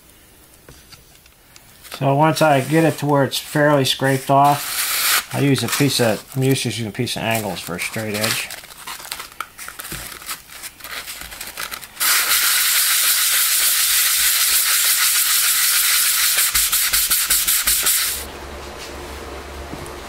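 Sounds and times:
sandpaper rubbing on metal: 2.3 - 6.4, 12.0 - 18.3
paper rustling and clicks: 5.3 - 12.2.

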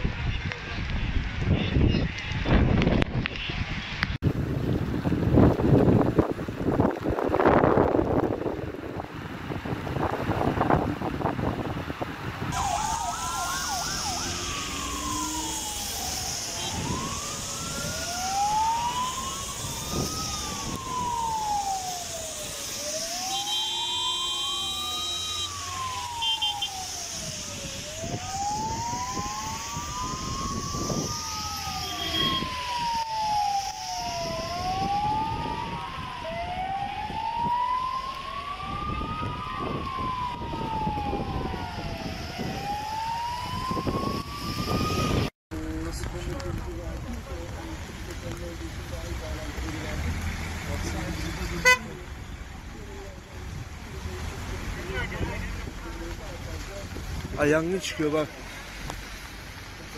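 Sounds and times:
wind noise on microphone: 0.0 - 22.6, 26.6 - 48.9, 53.3 - 57.6
sirens wailing: 12.4 - 45.4, 47.0 - 59.9.

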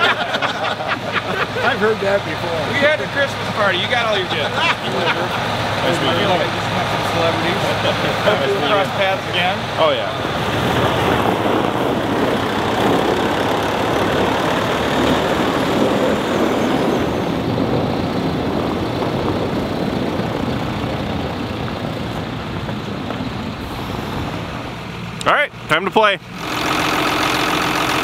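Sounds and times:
diesel truck engine rumbling: 0.0 - 28.0.

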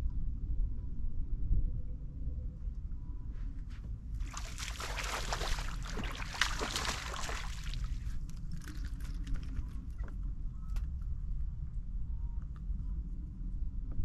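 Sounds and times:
low steady rumble: 0.0 - 14.0
fish splashing in water: 4.2 - 9.6.

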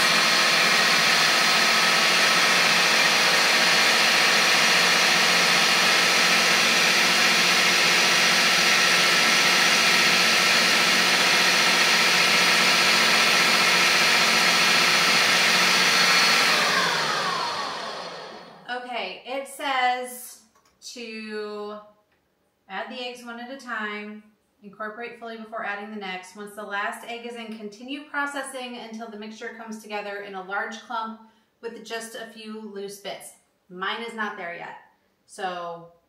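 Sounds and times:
food processor running: 0.0 - 18.7.

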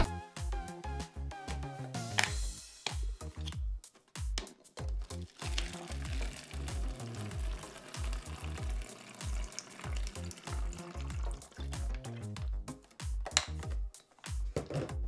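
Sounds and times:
background music with beat: 0.0 - 15.0
liquid pouring into plastic bottle: 5.0 - 12.2.

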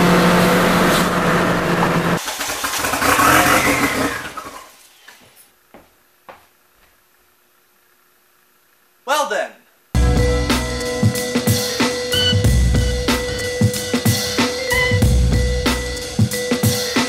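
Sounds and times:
car engine revving: 0.0 - 4.4.

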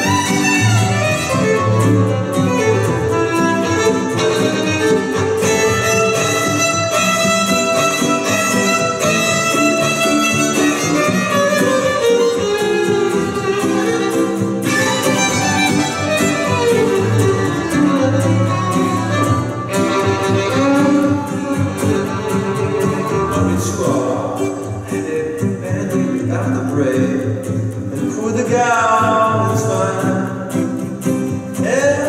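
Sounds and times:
violin melody: 0.0 - 25.0
acoustic guitar accompaniment: 0.0 - 32.0.

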